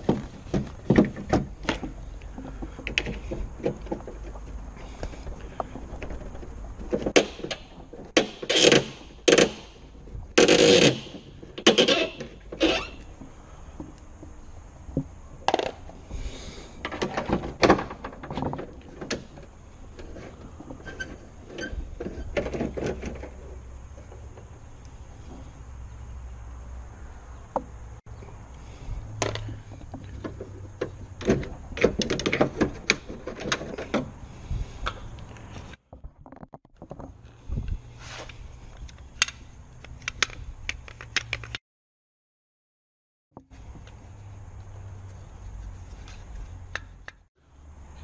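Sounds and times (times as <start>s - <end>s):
metal clicks knocks and scrapes: 38.2s - 41.6s.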